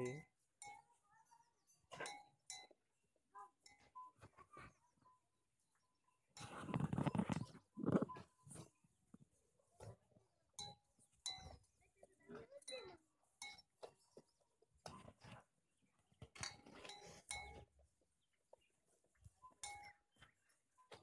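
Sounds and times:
metal cow bell clinking: 0:00.0 - 0:02.8, 0:03.4 - 0:04.3, 0:06.4 - 0:08.4, 0:10.6 - 0:14.1, 0:16.4 - 0:17.8, 0:19.4 - 0:21.0.

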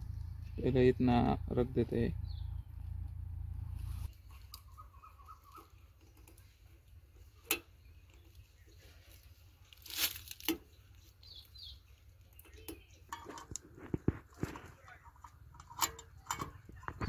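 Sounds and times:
small metal clicks: 0:07.3 - 0:08.4, 0:12.2 - 0:17.0.

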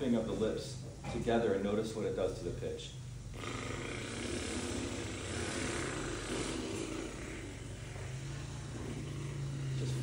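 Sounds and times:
fluttering lip buzzing: 0:03.3 - 0:10.0.

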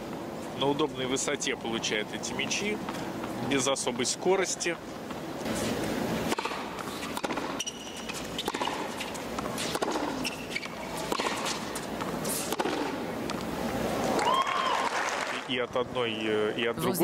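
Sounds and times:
shoes squeaking on court: 0:05.0 - 0:13.0
tennis ball pops: 0:06.3 - 0:07.6, 0:12.5 - 0:13.4.

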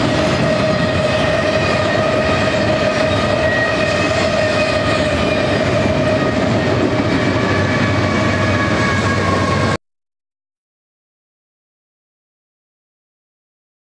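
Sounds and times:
train wheels rumbling on rail: 0:00.0 - 0:09.8.

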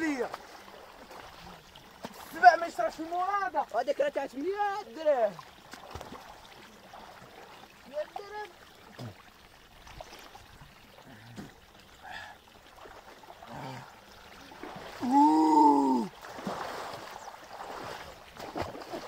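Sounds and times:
people wading in water: 0:00.0 - 0:19.0
water pouring from a pipe: 0:05.0 - 0:19.0
person shouting: 0:15.0 - 0:16.1.

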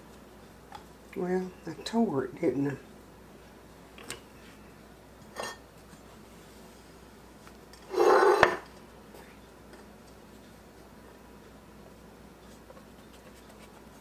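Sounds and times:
ceramic dish scraping on countertop: 0:07.9 - 0:08.6
dough rustling: 0:09.1 - 0:14.0.

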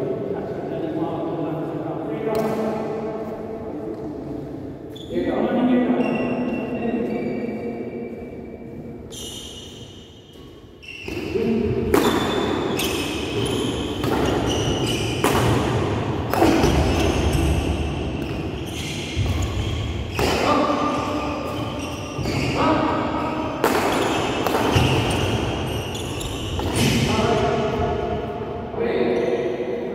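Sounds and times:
short shoe squeaks: 0:04.9 - 0:07.7, 0:09.1 - 0:15.3, 0:18.2 - 0:22.7, 0:23.9 - 0:27.0
racket hitting shuttlecock: 0:10.3 - 0:17.5, 0:23.6 - 0:27.1.

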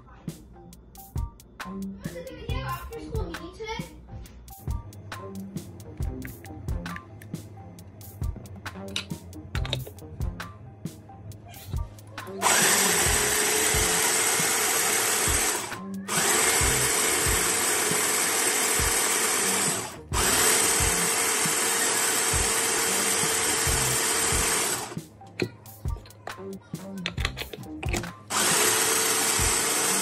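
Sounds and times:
mini chopper motor whirring: 0:12.4 - 0:25.0, 0:28.3 - 0:30.0
bowl handling clicks: 0:27.0 - 0:28.2.

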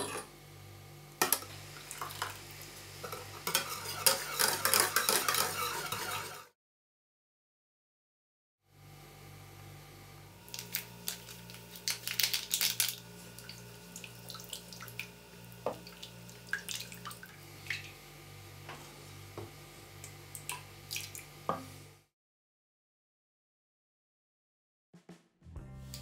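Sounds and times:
wooden spoon stirring in a saucepan: 0:03.4 - 0:06.5.

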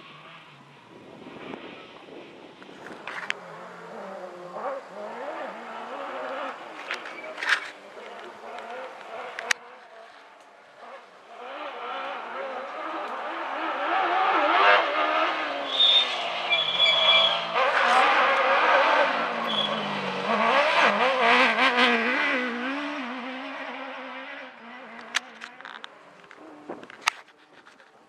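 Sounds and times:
buggy engine revving: 0:00.0 - 0:27.0
high squeals: 0:14.7 - 0:20.2.

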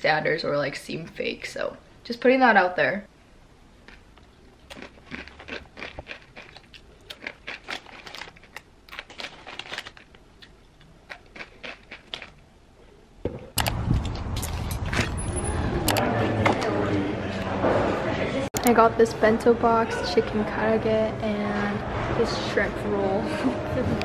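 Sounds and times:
crunching of dry snack being chewed: 0:03.8 - 0:12.4
snack bag crinkling: 0:03.8 - 0:12.4.

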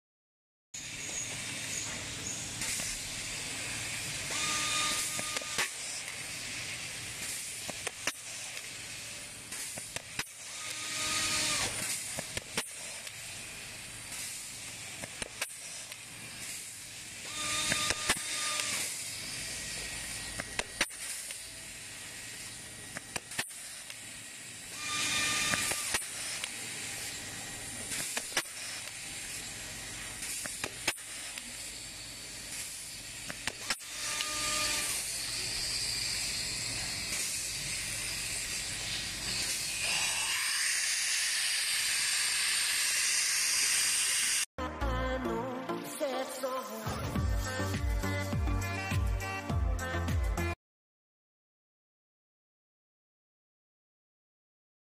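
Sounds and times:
rivet gun vacuum hiss: 0:00.8 - 0:44.5.

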